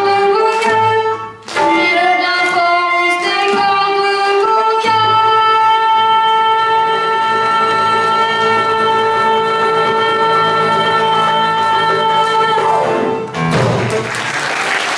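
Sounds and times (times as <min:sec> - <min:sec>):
audience applause: 0:13.6 - 0:14.9.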